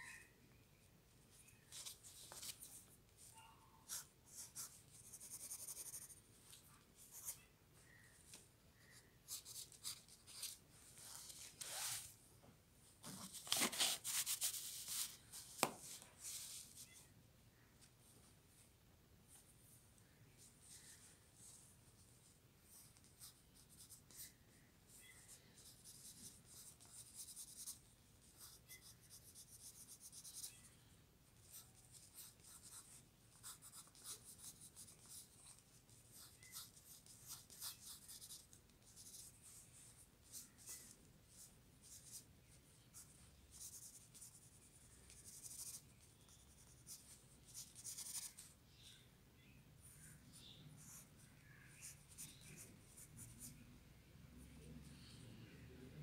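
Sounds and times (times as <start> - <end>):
pencil scratching on paper: 3.9 - 6.2, 25.6 - 30.6, 31.4 - 39.6.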